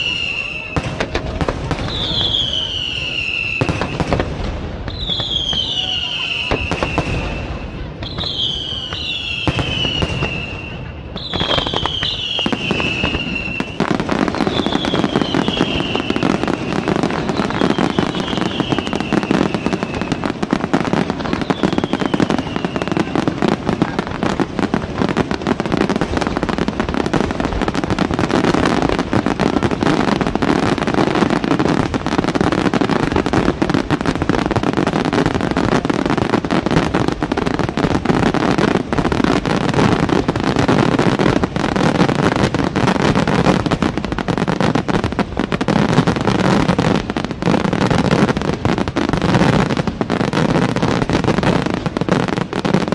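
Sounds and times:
falling firework whistles: 0.0 - 24.4
fireworks bursting and crackling: 0.0 - 52.9.

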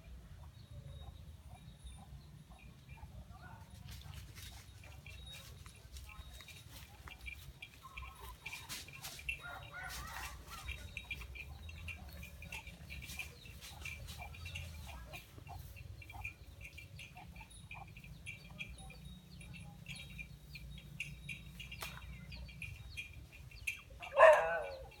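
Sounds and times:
chickens clucking: 0.4 - 25.0
high chirping: 6.1 - 25.0.

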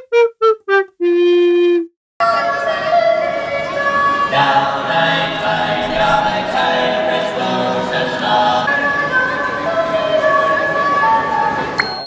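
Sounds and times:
choir singing chords: 4.1 - 9.0.

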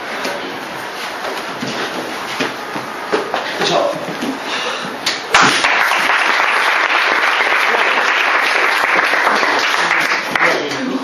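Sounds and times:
audience applauding: 5.3 - 10.9.

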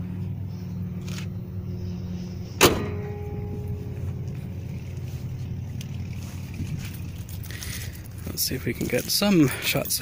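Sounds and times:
steady low hum: 0.0 - 8.8
car hood slamming shut: 2.6 - 3.2.

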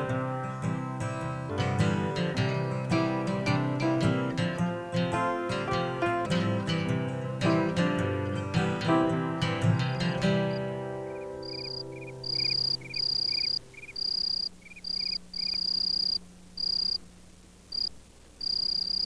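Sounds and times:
guitar chord: 0.0 - 12.8
lower insect chirp: 9.9 - 17.1, 17.7 - 19.0
crickets trilling: 11.1 - 17.1, 17.7 - 19.0.

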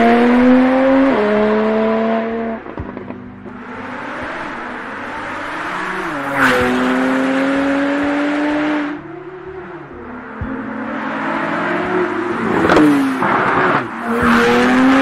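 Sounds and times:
car engine accelerating hard: 0.0 - 15.0.

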